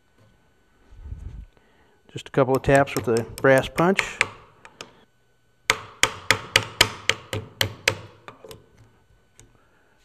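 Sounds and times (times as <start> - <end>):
metal punch tapping pin: 2.5 - 5.0.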